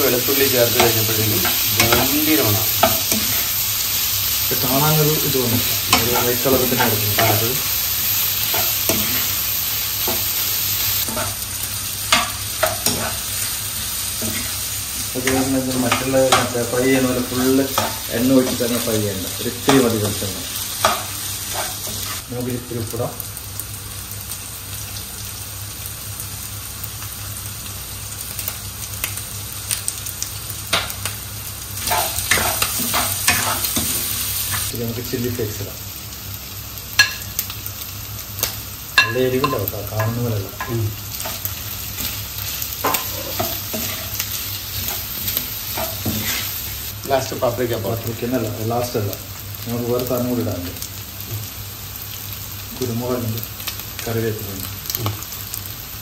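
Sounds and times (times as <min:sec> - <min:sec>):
chicken sizzling in oil: 0:00.0 - 0:56.0
spatula scraping and knocking pan: 0:11.0 - 0:11.4, 0:42.8 - 0:46.6
spatula scraping pan: 0:20.8 - 0:22.2, 0:39.0 - 0:46.6.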